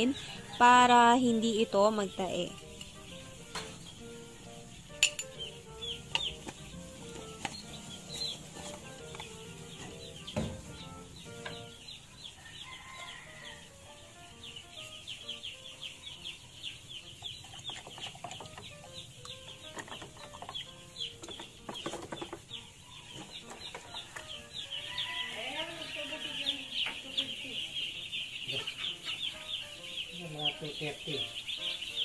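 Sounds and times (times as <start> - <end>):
chicks peeping: 0.0 - 32.0
soft background music: 0.0 - 32.0
single knock: 10.3 - 10.7.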